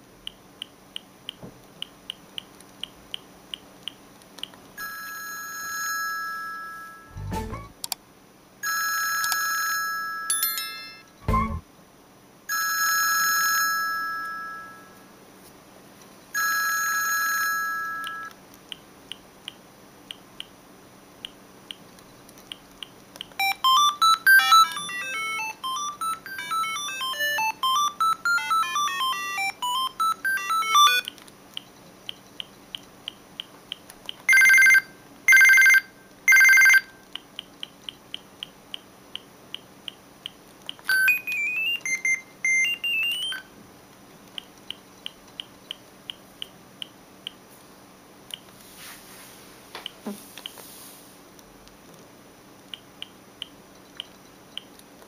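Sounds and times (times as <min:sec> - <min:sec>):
short phone melody: 0:06.6 - 0:07.8, 0:10.3 - 0:11.6, 0:23.4 - 0:31.0
phone chimes: 0:08.6 - 0:11.6, 0:23.4 - 0:31.0, 0:34.3 - 0:36.9
electronic notes sweeping: 0:11.2 - 0:11.6.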